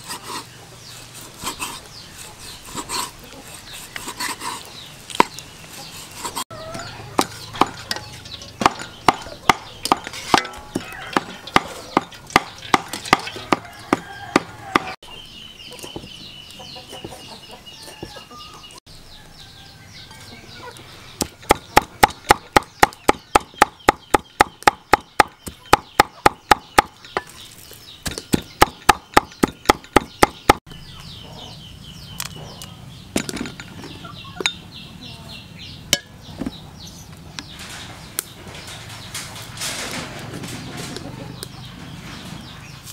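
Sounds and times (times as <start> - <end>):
cleaver chopping on wooden block: 8.6 - 15.0, 21.2 - 27.3, 28.0 - 30.6.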